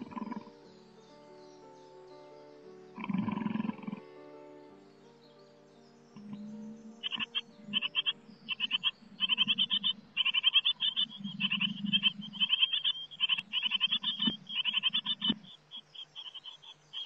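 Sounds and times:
nestlings begging calls: 6.2s - 17.0s.

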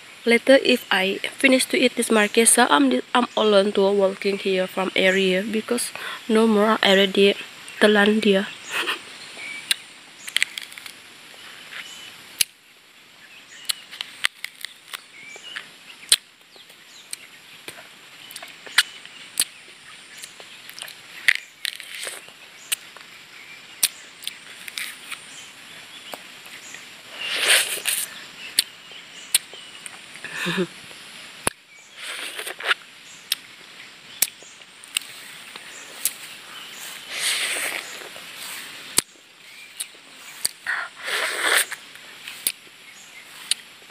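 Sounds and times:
wet mouth clicks and smacks: 13.6s - 15.0s, 17.1s - 19.6s, 20.2s - 22.8s, 34.2s - 35.1s, 39.8s - 42.7s, 43.4s - 43.7s
sucking noises: 27.0s - 28.6s, 31.9s - 32.8s, 34.9s - 39.0s, 39.7s - 42.6s.

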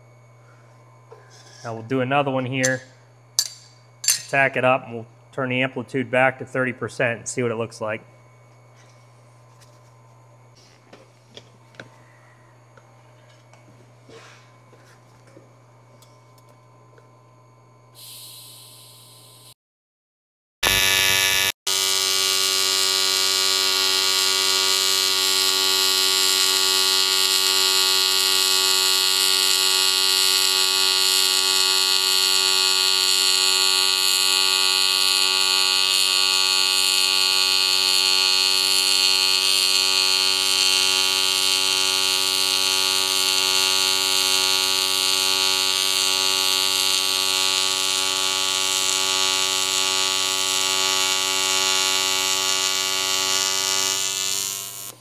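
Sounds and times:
welding arc buzzing: 0.0s - 4.6s, 18.0s - 19.6s, 20.6s - 55.0s.

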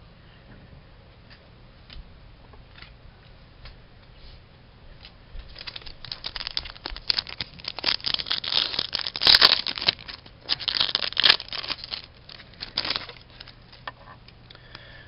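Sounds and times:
plastic wrapper crinkling and tearing: 5.5s - 13.9s.

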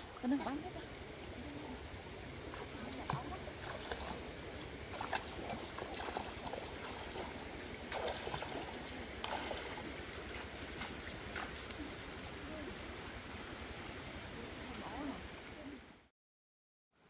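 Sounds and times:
shallow stream running: 0.0s - 16.1s
feet splashing through water: 2.4s - 12.2s.

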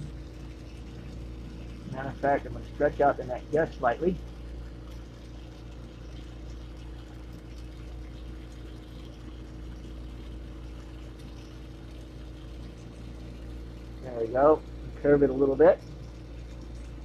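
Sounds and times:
low steady hum: 0.0s - 17.0s.

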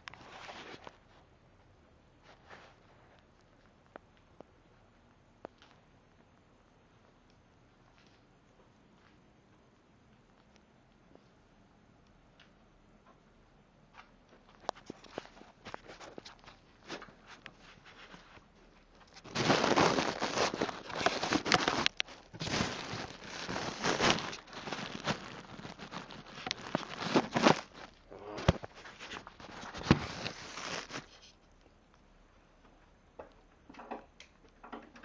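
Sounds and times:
phone handling rustle on microphone: 14.6s - 31.4s.

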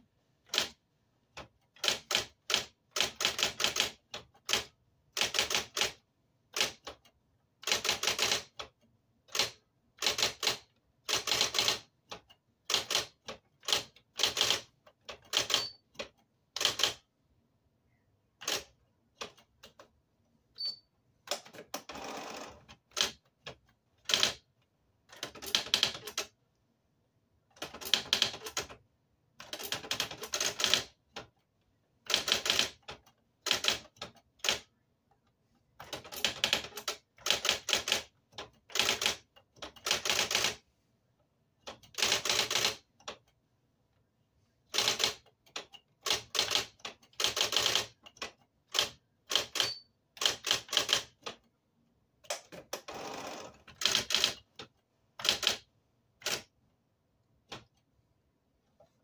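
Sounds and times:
electric typewriter key strikes: 44.8s - 51.2s.

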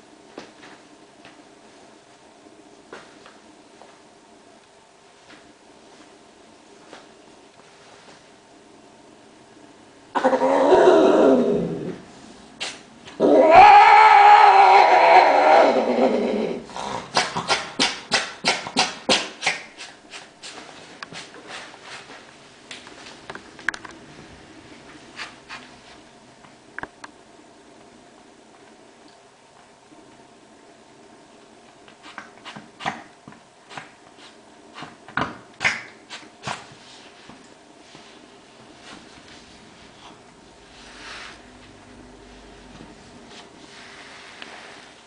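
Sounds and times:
cat moaning yowl: 10.2s - 12.0s, 13.2s - 16.8s.

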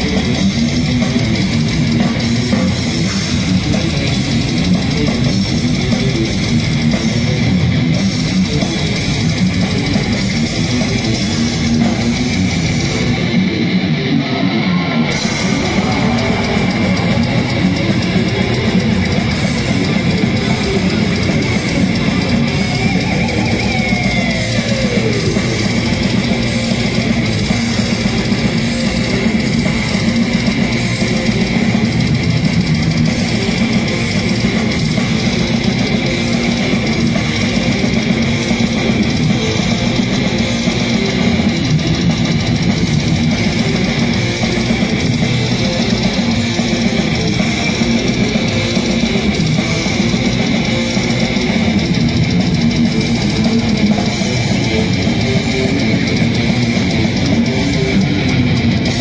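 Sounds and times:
death metal band playing: 0.0s - 59.0s
guitar note sliding down: 10.7s - 32.4s.

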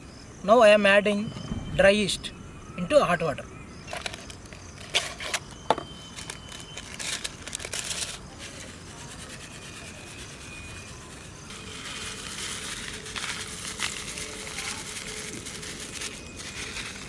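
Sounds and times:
yeast sachet crinkling: 6.2s - 8.8s, 11.5s - 17.0s.

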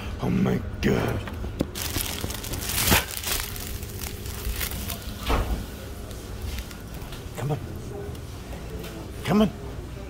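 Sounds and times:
plastic bag crinkling: 1.7s - 7.4s.

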